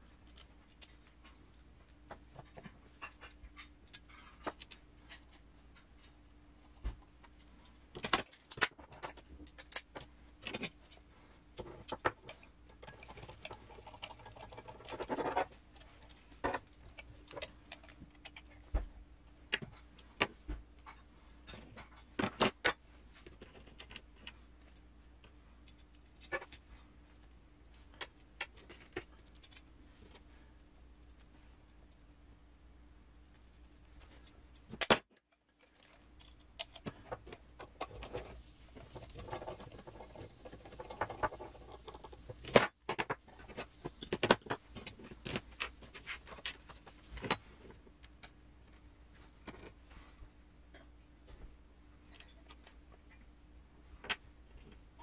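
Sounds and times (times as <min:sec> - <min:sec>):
metal parts clicking and clinking: 0:00.0 - 0:18.6, 0:28.0 - 0:29.7, 0:33.3 - 0:42.7.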